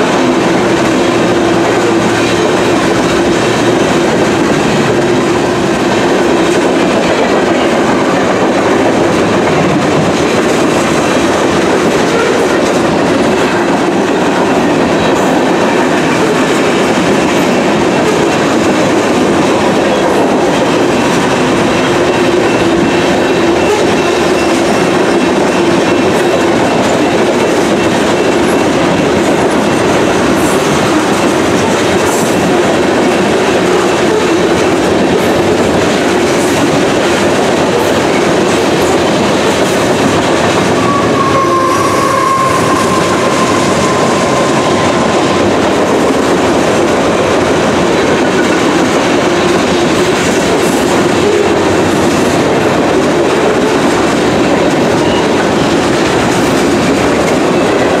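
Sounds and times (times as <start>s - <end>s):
freight train wheels rumbling: 0.0s - 58.0s.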